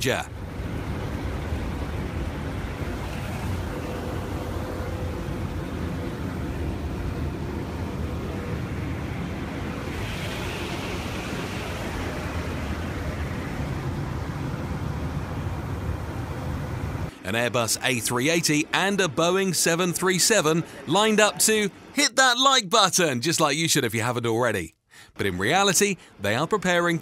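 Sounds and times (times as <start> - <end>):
small plane engine drone in cabin: 0.3 - 17.2.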